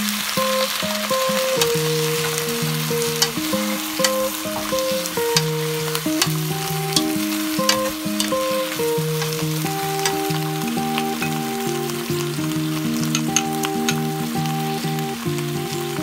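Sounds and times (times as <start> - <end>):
background music: 0.0 - 16.0
food sizzling in wok: 0.0 - 16.0
wooden spatulas clicking on pan: 6.2 - 8.5.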